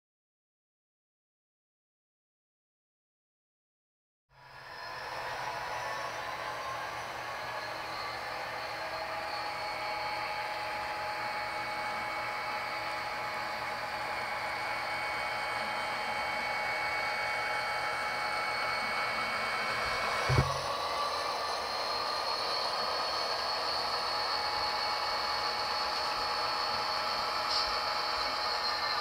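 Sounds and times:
high whine: 4.4s - 29.0s
model train motors whirring: 4.4s - 29.0s
short thump: 20.2s - 20.6s.

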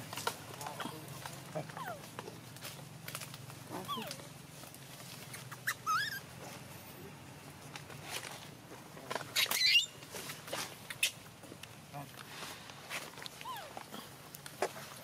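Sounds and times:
baby monkey crying: 3.8s - 4.2s, 5.3s - 6.3s, 9.4s - 9.9s.

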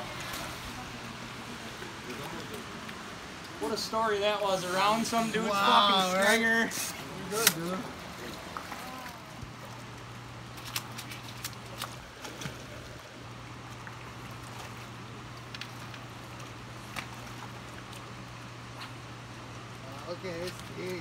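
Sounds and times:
creek water rushing: 0.0s - 11.0s
low steady hum: 0.0s - 21.0s.

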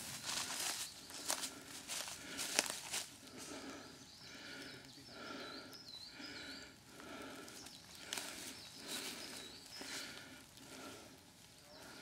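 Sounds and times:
footsteps through leaf litter: 0.0s - 3.2s.

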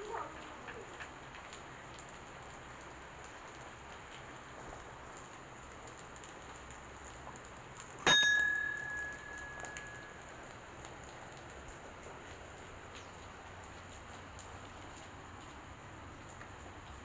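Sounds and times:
metal bell ringing: 8.1s - 10.2s.

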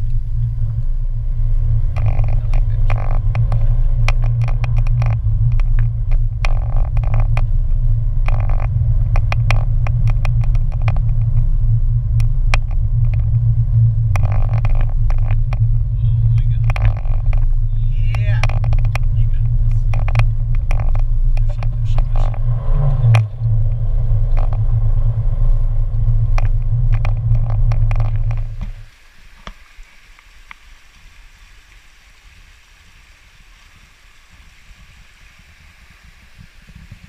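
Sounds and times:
car road noise rumble: 0.0s - 37.0s
stream rushing over rocks: 27.7s - 37.0s.

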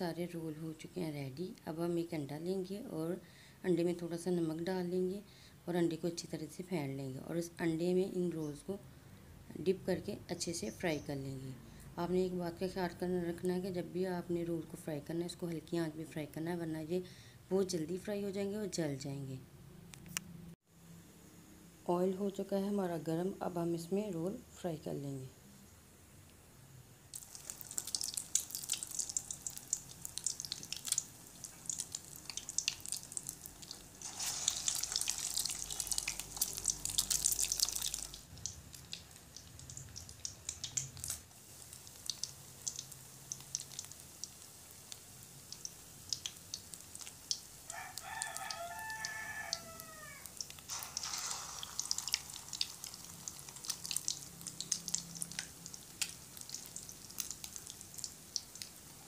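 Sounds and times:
bread frying in hot oil: 27.1s - 59.0s.

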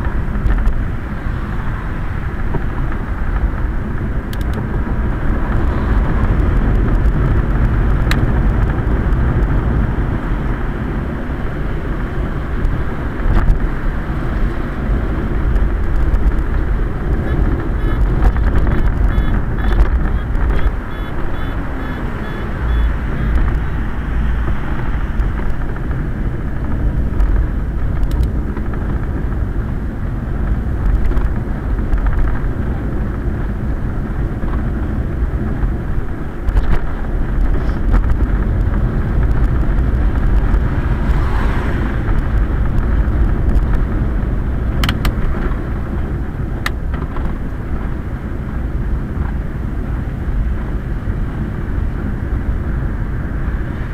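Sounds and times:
tyres rolling on wet road: 0.1s - 53.9s
sharp ticks: 17.3s - 23.8s.

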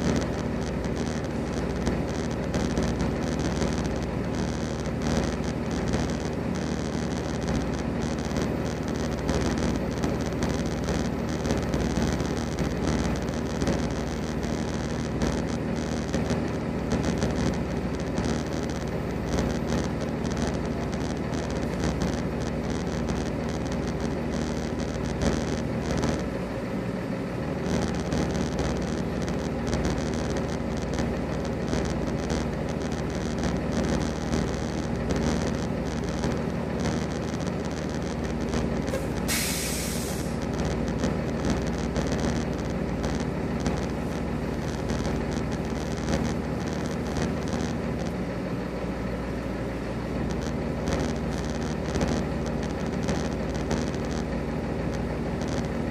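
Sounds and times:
diesel truck engines idling: 0.0s - 55.9s
air brake hiss: 39.3s - 40.2s.

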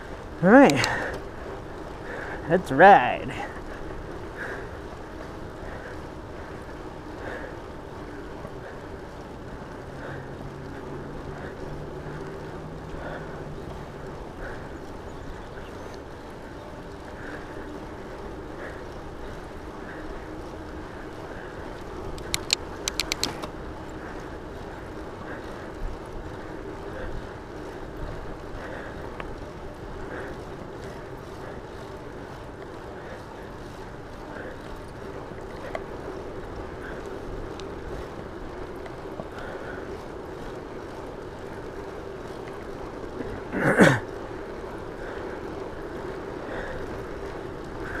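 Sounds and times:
bike tyre hum: 0.0s - 48.0s
sharp clicks: 0.6s - 1.3s, 22.1s - 23.6s.

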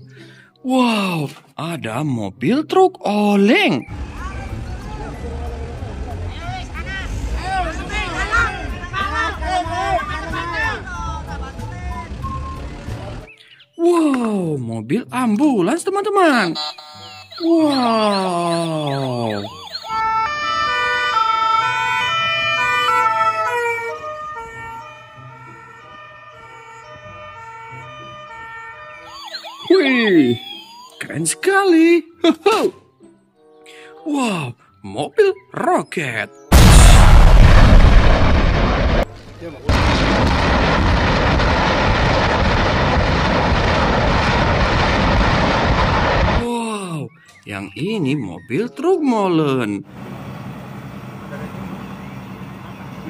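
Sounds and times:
ambulance siren: 16.2s - 31.4s
rockets roaring from launch tubes: 36.5s - 39.1s, 39.7s - 46.4s.

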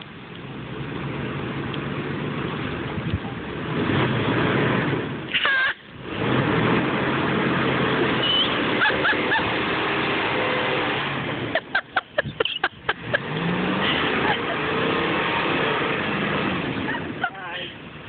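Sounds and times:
atv engine: 0.0s - 18.0s
pickup truck engine under load: 0.0s - 18.0s.

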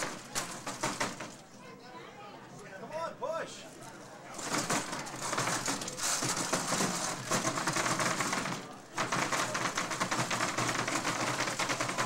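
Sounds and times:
robots clattering and scraping: 4.3s - 9.0s.

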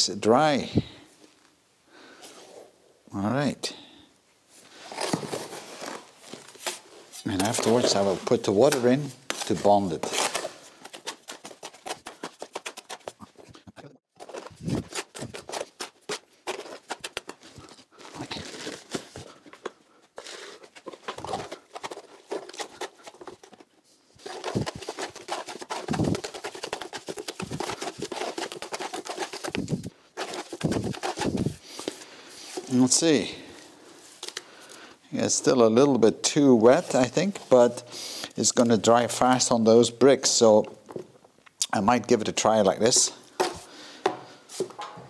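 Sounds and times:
trowel scraping mortar in bucket: 7.1s - 13.5s, 24.2s - 31.7s.

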